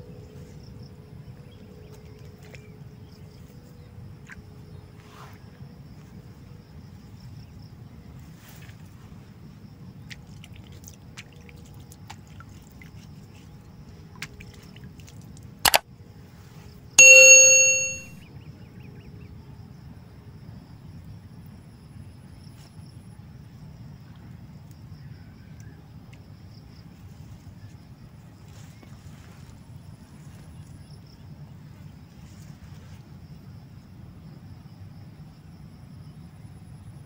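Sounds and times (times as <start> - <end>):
bell ding: 17.0 - 18.1
sharp click: 17.0 - 18.1.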